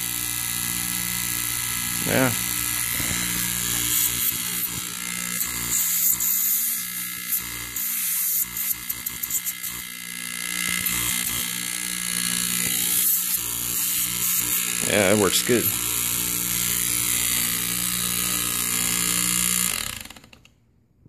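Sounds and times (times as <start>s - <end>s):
vacuum pump electric hum: 0.0s - 20.3s
air hissing at intake: 5.4s - 9.8s.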